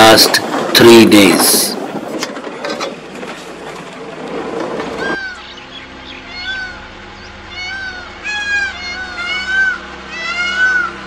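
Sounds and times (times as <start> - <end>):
jeep rattling on dirt track: 0.0 - 5.2
bird calling: 4.8 - 11.0.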